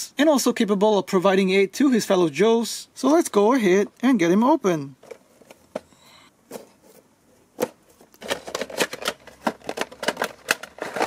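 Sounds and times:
cardboard box and plastic tray opened: 7.6 - 11.0.

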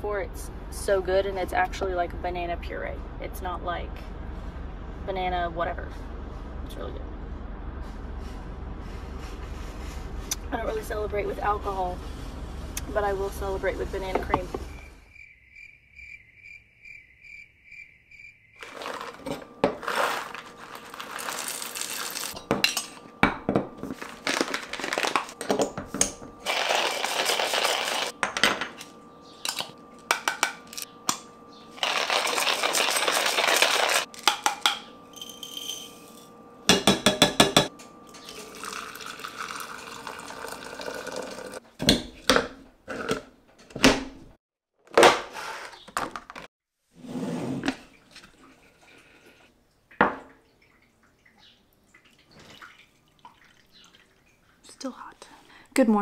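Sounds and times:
crickets chirping: 14.6 - 19.1.

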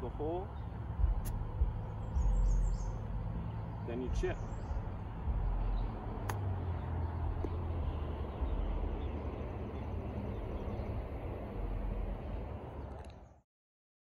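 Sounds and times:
low rumble: 0.0 - 13.0
golf club striking ball: 6.2 - 6.5.

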